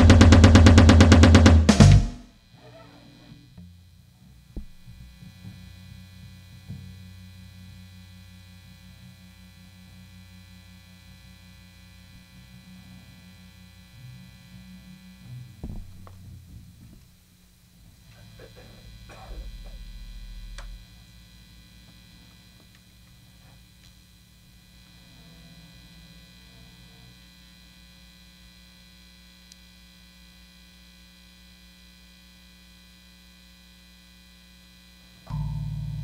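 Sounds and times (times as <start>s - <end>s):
electrical mains hum: 0.0s - 36.0s
loud low thump: 4.6s - 5.0s, 15.6s - 16.5s, 18.8s - 21.2s
low bass note: 18.0s - 22.6s, 35.3s - 36.0s.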